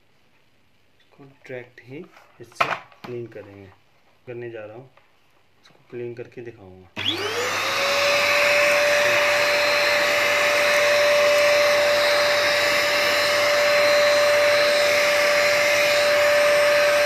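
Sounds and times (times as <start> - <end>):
vacuum cleaner whining: 7.0 - 17.0
vacuum nozzle pushed over carpet: 7.0 - 17.0.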